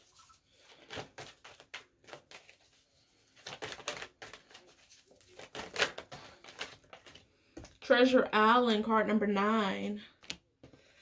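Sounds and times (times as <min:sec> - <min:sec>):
cards being shuffled: 0:00.0 - 0:07.7.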